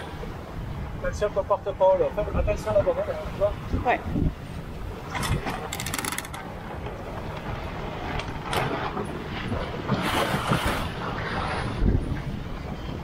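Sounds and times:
water rushing along boat hull: 0.0s - 13.0s
wind on microphone: 2.2s - 13.0s
ratchet clicks: 5.7s - 6.4s.

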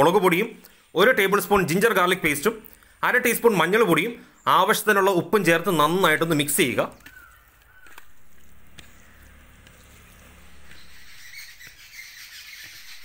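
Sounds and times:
hand squelching chicken in marinade: 5.5s - 11.9s.

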